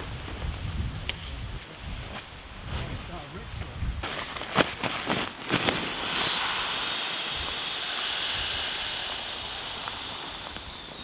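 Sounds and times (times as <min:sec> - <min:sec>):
air hissing through valve: 0:05.8 - 0:11.0
thin high whistle: 0:09.8 - 0:11.0.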